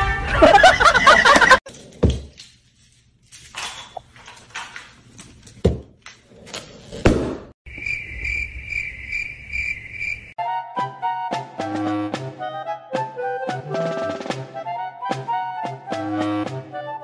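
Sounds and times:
crickets chirping: 7.7s - 10.4s
light music: 10.4s - 17.0s.

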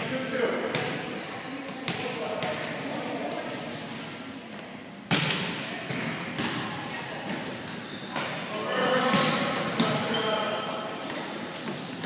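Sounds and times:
volleyball being hit: 5.1s - 6.7s, 9.1s - 10.1s.

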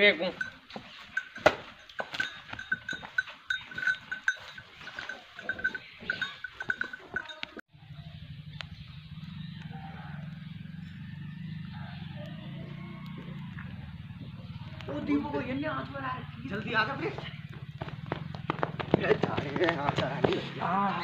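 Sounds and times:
metallic clinks and knocks: 0.2s - 7.6s.

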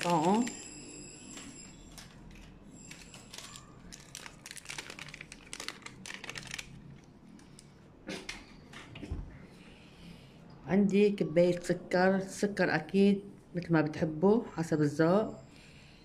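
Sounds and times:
plastic packet crinkling: 2.9s - 7.7s.

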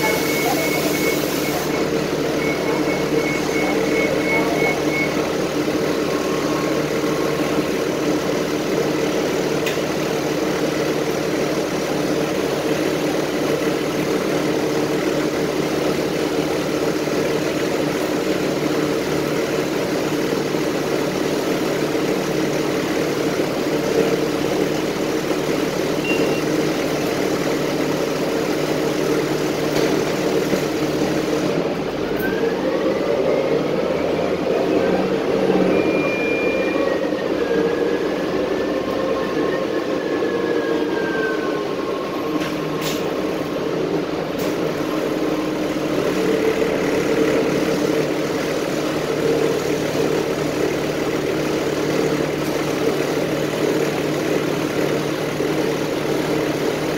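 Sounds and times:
bus engine idling: 0.0s - 56.9s.

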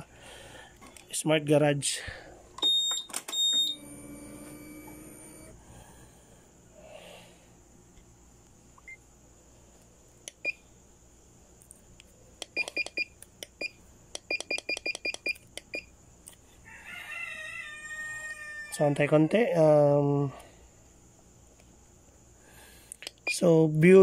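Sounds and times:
electronic key beeps: 2.6s - 3.8s, 12.5s - 13.7s.

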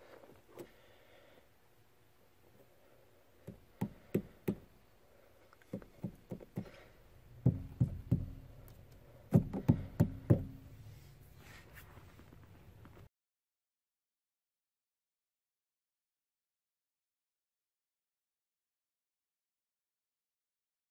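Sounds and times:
pedal arms knocking: 5.7s - 8.6s, 9.3s - 10.7s.

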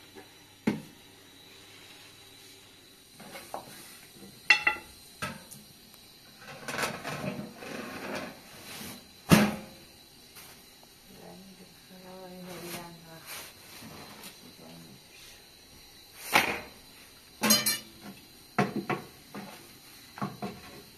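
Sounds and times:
dishes knocking and clinking: 4.5s - 5.4s, 17.4s - 19.1s.

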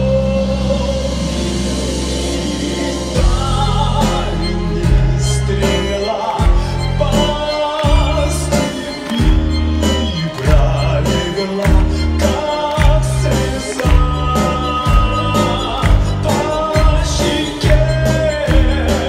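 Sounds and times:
man singing: 0.0s - 19.0s
orchestra with strong bass: 0.0s - 19.0s.

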